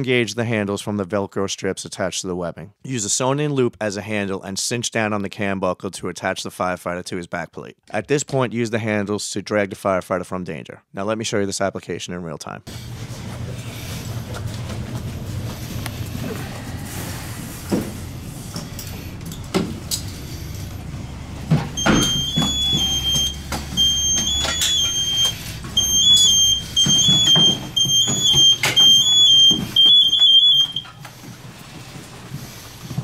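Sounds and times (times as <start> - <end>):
electronic distress alarm chirping: 21.8 - 31.0.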